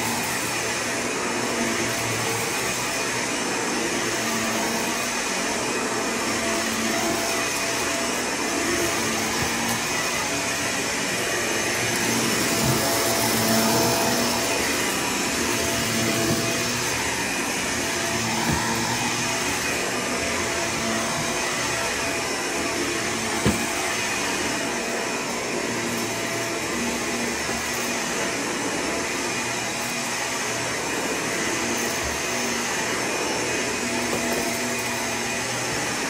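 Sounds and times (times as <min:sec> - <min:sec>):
vacuum cleaner running: 0:00.0 - 0:36.0.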